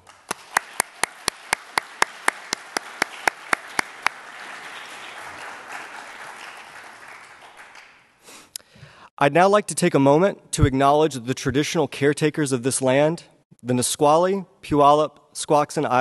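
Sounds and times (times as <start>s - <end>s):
audience applause: 0.0s - 8.2s
loud claps at microphone: 0.0s - 8.2s.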